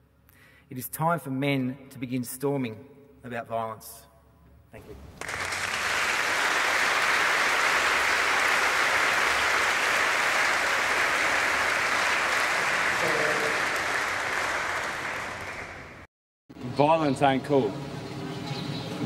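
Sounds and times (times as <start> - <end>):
audience applauding: 5.1 - 16.1.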